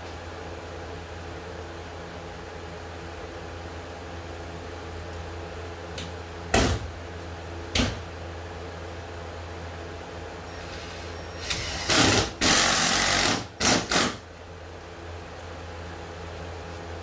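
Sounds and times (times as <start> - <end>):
power screwdriver driving screws: 11.4 - 14.2.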